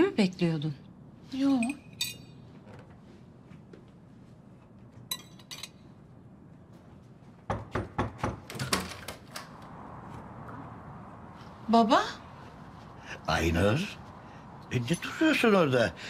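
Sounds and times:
tableware clinking: 1.4s - 2.4s, 5.1s - 5.9s.

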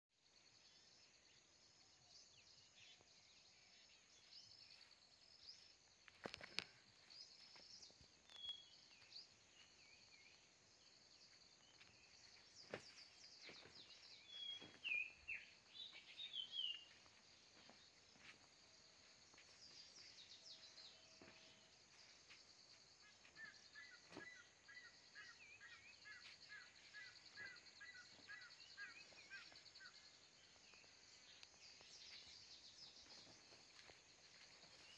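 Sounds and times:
insects chirring: 3.7s - 34.9s
birds calling: 11.2s - 34.9s.

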